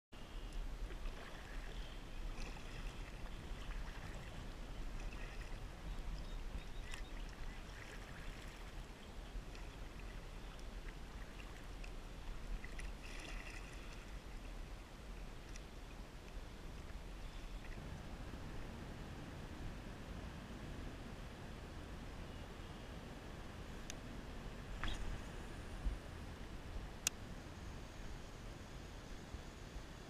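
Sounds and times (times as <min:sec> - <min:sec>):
kayak paddle splashing: 0:00.7 - 0:14.8
low rumble: 0:16.7 - 0:28.5.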